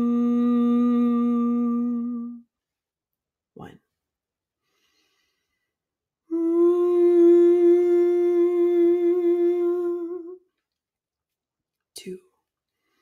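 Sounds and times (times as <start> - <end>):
woman humming a steady note: 0.0 - 2.5, 6.3 - 10.5.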